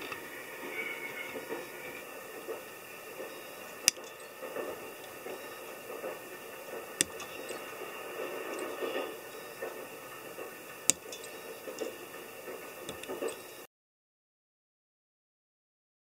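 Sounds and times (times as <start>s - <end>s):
pliers snipping wire: 3.3s - 13.6s.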